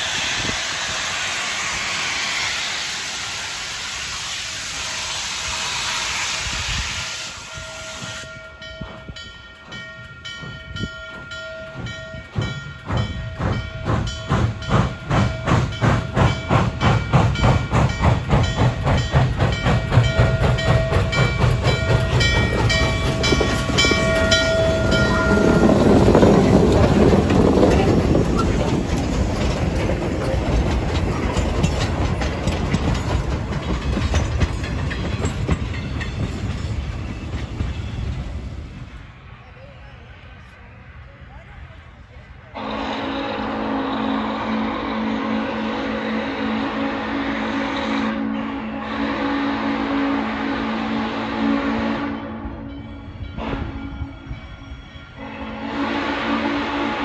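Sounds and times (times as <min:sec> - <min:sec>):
steam exhaust chuffs: 0:00.0 - 0:09.2, 0:10.0 - 0:39.1, 0:42.6 - 0:52.4
steam locomotive chime whistle: 0:00.0 - 0:28.7, 0:42.6 - 0:57.0
rush of steam: 0:00.0 - 0:57.0
train wheels rumbling and clattering: 0:00.0 - 0:57.0.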